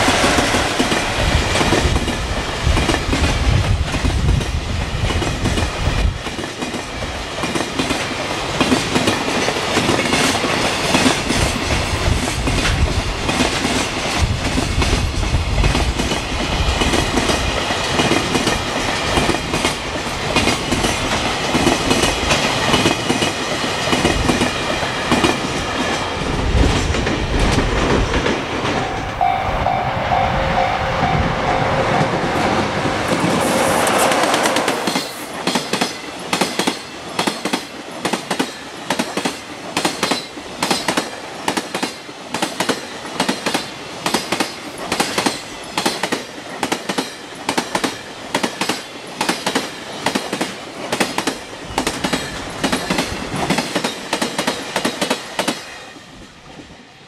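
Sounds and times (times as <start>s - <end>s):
freight train wheels clattering: 0.0s - 30.2s, 31.0s - 55.8s
level crossing bell ringing: 28.7s - 33.4s.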